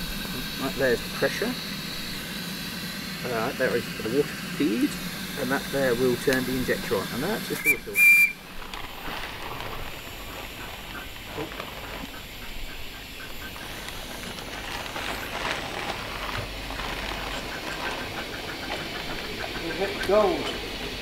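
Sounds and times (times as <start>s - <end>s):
steam whistle blast: 7.5s - 8.4s.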